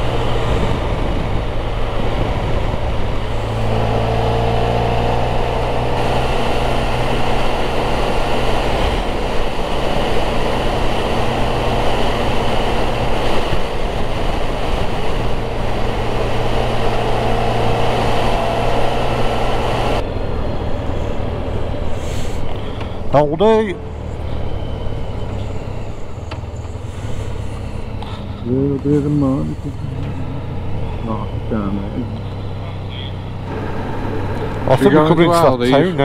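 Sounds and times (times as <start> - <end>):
wind on microphone: 0.0 - 3.9
motorcycle engine cruising: 0.0 - 36.0.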